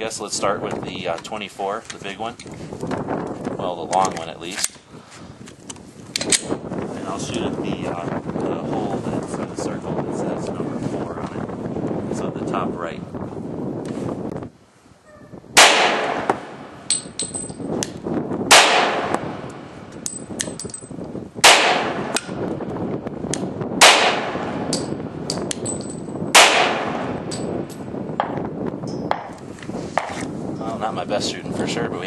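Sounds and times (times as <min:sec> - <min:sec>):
pistol shots: 0:15.6 - 0:16.8, 0:18.5 - 0:19.7, 0:21.4 - 0:22.4, 0:23.8 - 0:25.0, 0:26.3 - 0:27.4.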